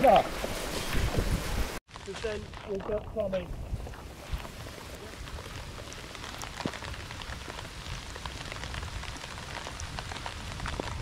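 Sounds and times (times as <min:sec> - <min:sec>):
heavy rain falling: 0:04.2 - 0:11.0.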